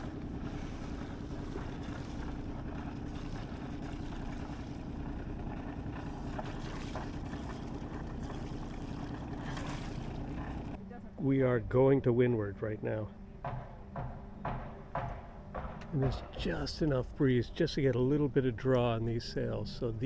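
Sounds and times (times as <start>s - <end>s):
faint water sounds: 0.0s - 13.4s.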